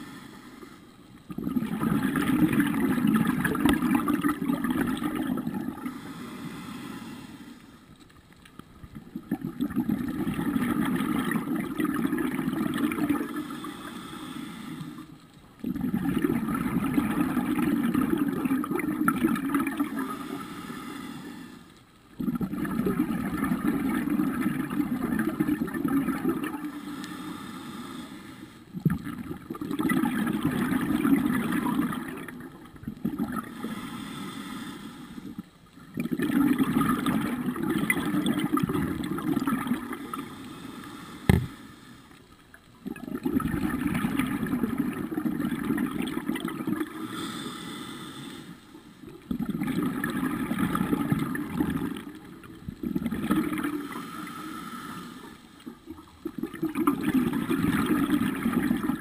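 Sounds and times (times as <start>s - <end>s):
diver breathing through regulator: 0.0s - 1.0s, 5.8s - 7.9s, 13.2s - 15.2s, 20.0s - 21.8s, 26.6s - 28.7s, 33.4s - 35.4s, 39.9s - 42.2s, 46.9s - 48.9s, 53.7s - 55.7s
exhaled bubbles surging: 1.2s - 6.0s, 8.8s - 13.7s, 15.6s - 20.2s, 22.2s - 26.8s, 28.7s - 33.6s, 35.3s - 40.3s, 42.8s - 47.0s, 49.1s - 54.3s, 55.6s - 59.0s.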